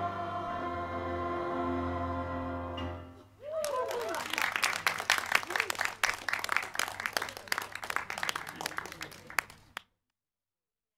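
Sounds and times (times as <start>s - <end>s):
small group applauding: 3.4s - 9.8s.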